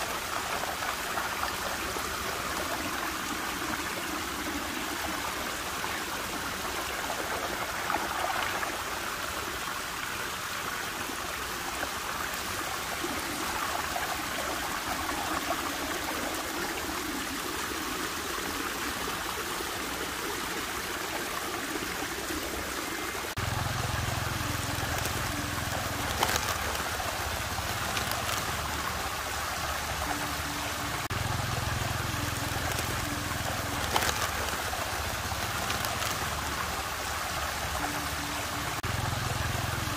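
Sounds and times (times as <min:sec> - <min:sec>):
water swirling and rushing: 0:00.0 - 0:39.9
low steady hum: 0:23.4 - 0:39.9.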